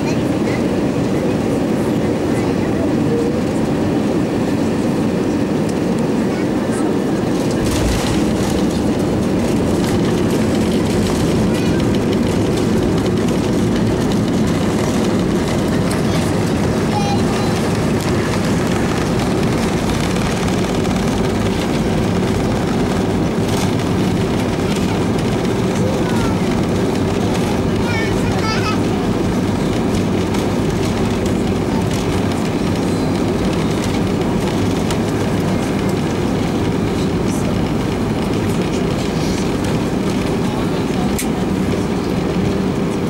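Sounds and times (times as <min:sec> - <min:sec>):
jet engines humming at low power: 0:00.0 - 0:43.0
landing gear rumbling on pavement: 0:07.4 - 0:28.5.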